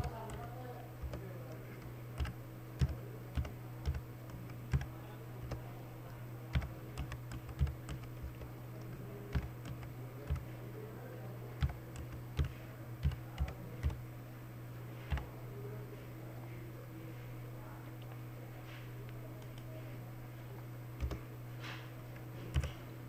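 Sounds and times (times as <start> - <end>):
typing on computer keyboard: 0.0 - 5.7, 6.5 - 10.6, 11.6 - 14.0, 15.1 - 15.3, 21.0 - 21.2, 22.2 - 22.8.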